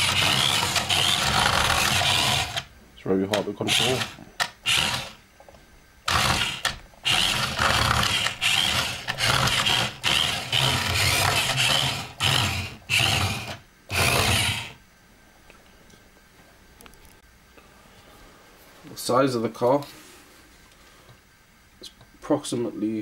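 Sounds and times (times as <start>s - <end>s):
toy car electric motor whirring: 0.0s - 2.7s, 3.6s - 5.2s, 6.1s - 14.8s.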